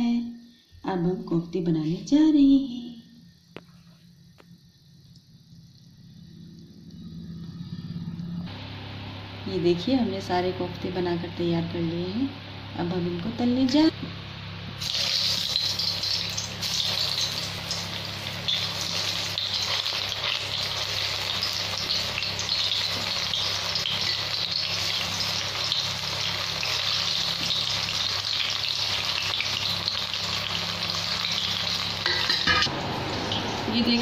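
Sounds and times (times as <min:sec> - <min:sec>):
food deep-frying in oil: 0:14.7 - 0:34.0.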